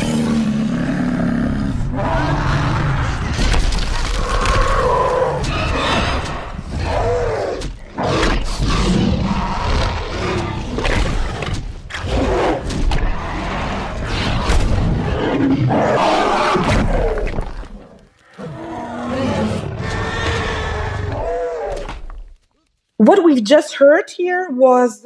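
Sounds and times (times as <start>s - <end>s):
dinosaur roars and growls: 0.0s - 22.2s.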